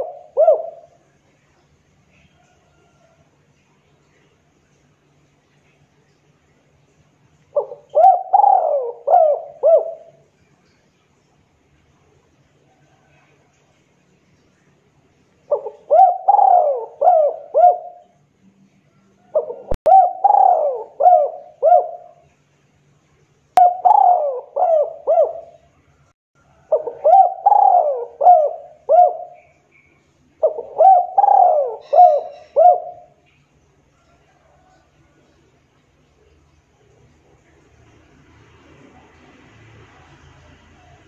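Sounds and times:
dove cooing: 0.0 - 1.1, 7.5 - 10.2, 15.5 - 18.1, 19.2 - 22.2, 23.6 - 25.7, 26.5 - 29.6, 30.4 - 33.2.

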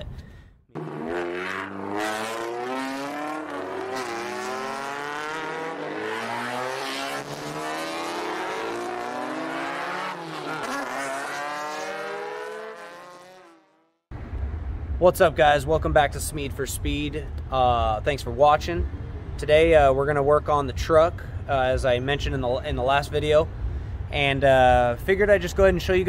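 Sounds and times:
race car engine accelerating: 0.8 - 13.6.

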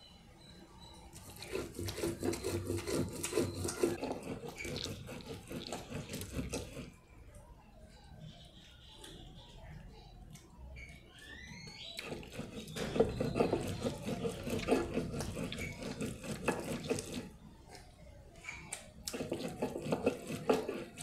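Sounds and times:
stone roller scraping wet paste: 1.2 - 7.0, 12.0 - 17.4, 19.1 - 21.0.

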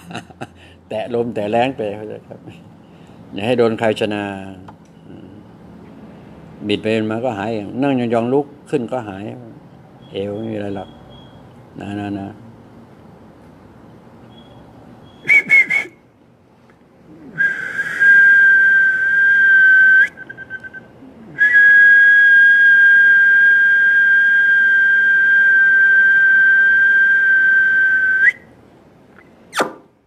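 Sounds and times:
person whistling: 15.1 - 16.0, 17.3 - 28.5.

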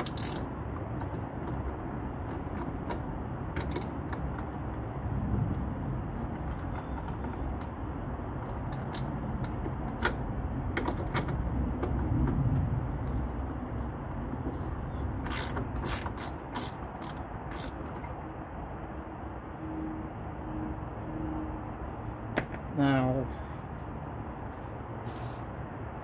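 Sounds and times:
ratchet wrench clicking: 0.0 - 4.3, 15.1 - 18.0
low rumble: 4.4 - 8.7.

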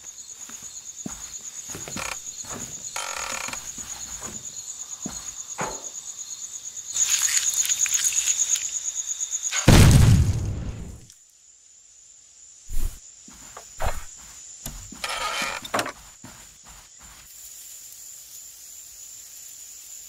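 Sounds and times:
crickets chirping: 0.0 - 20.0
short creak: 1.8 - 4.3, 14.7 - 16.0
loud low thud: 9.7 - 11.0.

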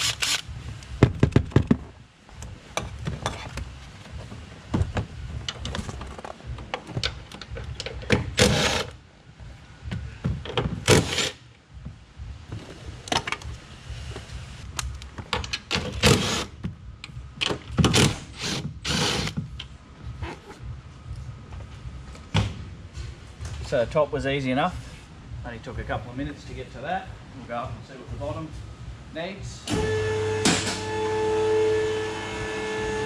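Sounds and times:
impact wrench bursts: 0.0 - 0.5, 8.4 - 9.0, 10.8 - 11.4
handling clicks and knocks: 4.8 - 8.4.

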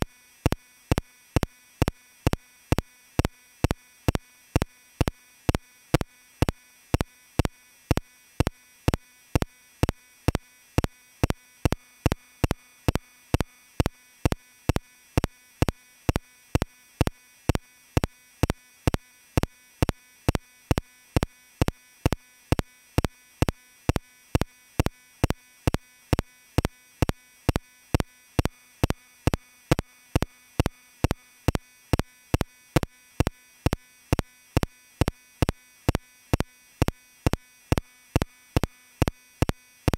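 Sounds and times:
faint steady hum: 0.0 - 39.9
sharp repeating clicks: 0.0 - 39.9.

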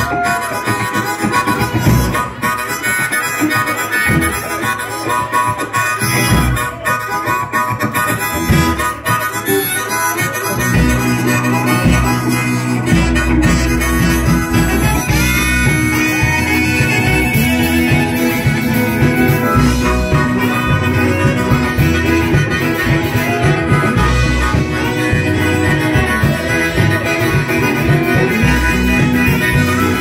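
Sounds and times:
harmonica lead: 0.0 - 30.0
keyboard: 0.0 - 30.0
live band playing: 0.0 - 30.0
heavy bass line: 10.5 - 30.0.

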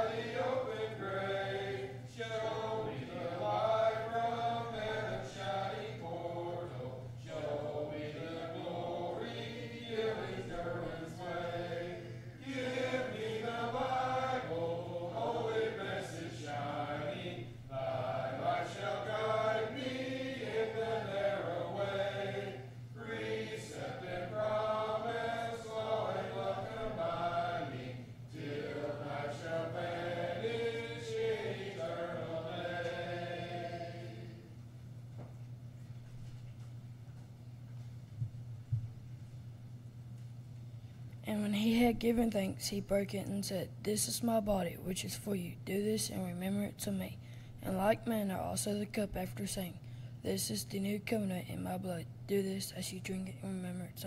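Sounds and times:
congregation singing a hymn: 0.0 - 34.6
steady low hum: 0.0 - 54.0.

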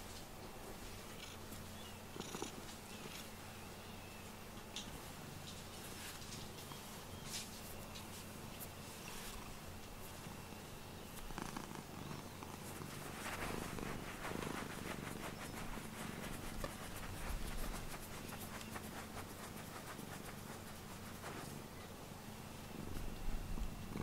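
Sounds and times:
cat purring: 0.8 - 3.2, 8.9 - 21.8, 22.8 - 24.0.

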